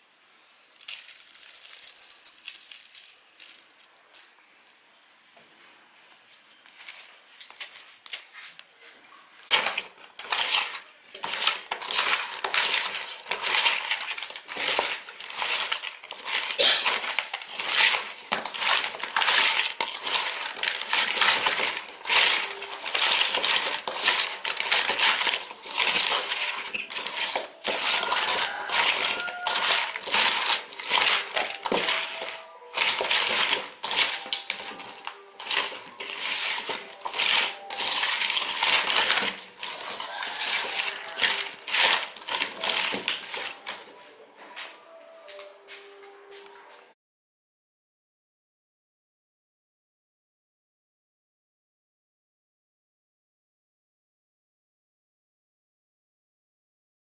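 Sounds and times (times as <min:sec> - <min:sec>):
wet squelching of hands mixing meat: 0:09.4 - 0:44.0
pieces knocking against metal bowl: 0:09.5 - 0:43.8.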